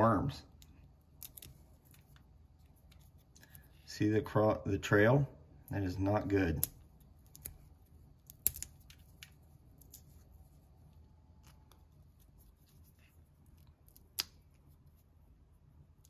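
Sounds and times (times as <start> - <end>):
chestnut shell crackling: 6.6 - 10.1.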